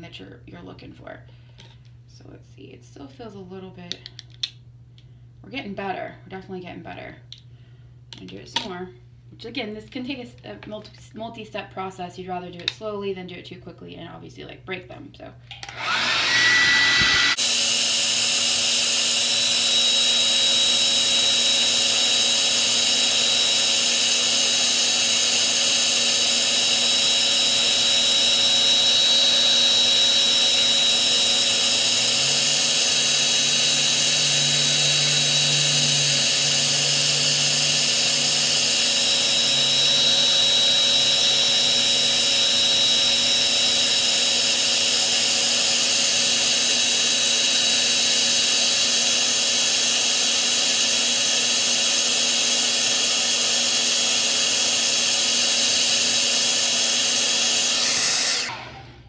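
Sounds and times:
hair dryer running: 15.5 - 59.0.

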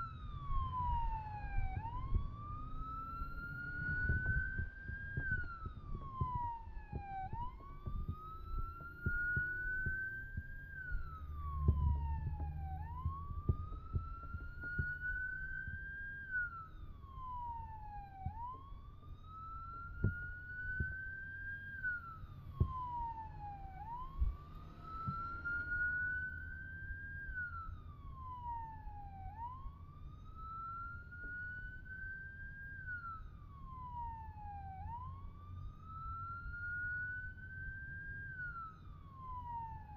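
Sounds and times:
low rumble with thumps: 0.0 - 21.2, 22.1 - 31.4
electronic siren wailing: 0.0 - 39.9.

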